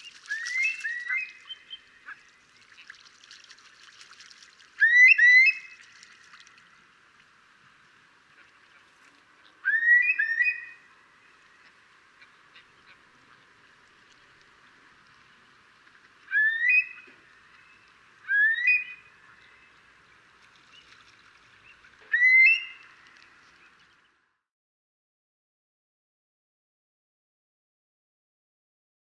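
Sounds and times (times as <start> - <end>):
curlew calling: 0.0 - 3.0, 4.8 - 6.5, 8.4 - 13.0, 16.2 - 19.8, 21.6 - 23.9.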